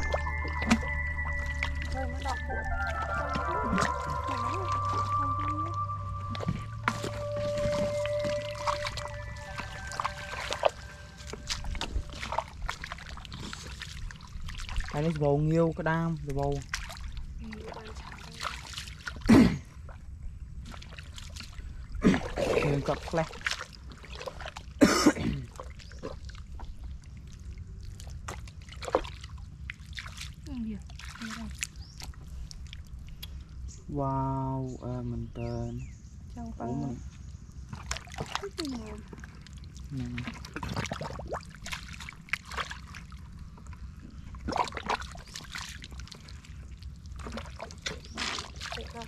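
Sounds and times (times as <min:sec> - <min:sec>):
mud squelching around boots: 0:00.0 - 0:05.7, 0:06.3 - 0:15.4, 0:16.3 - 0:19.5, 0:20.6 - 0:33.4, 0:37.7 - 0:49.0
water sloshing: 0:00.0 - 0:33.7, 0:36.8 - 0:49.0
steady low rumble: 0:00.0 - 0:49.0
boots squelching through mud: 0:06.8 - 0:15.1, 0:39.5 - 0:43.2, 0:44.4 - 0:46.5, 0:47.2 - 0:49.0.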